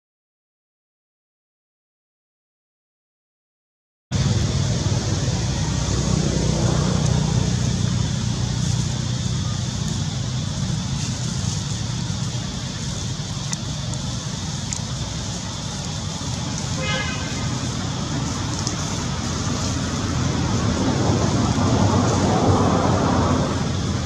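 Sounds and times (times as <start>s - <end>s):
low rumble: 4.1s - 24.0s
even hiss: 4.2s - 24.0s.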